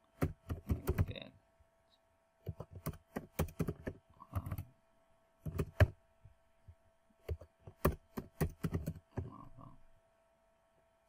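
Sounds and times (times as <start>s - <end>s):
keyboard typing: 0.0s - 1.2s, 2.4s - 4.7s, 5.4s - 6.0s, 7.2s - 9.5s
faint steady hum: 0.0s - 11.0s.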